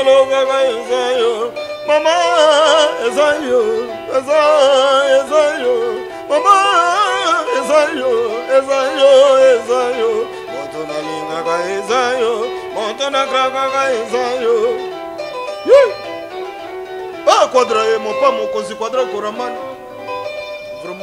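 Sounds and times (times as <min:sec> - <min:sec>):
person singing with vibrato: 0:00.0 - 0:14.9, 0:15.6 - 0:16.1
electric guitar: 0:00.0 - 0:21.0.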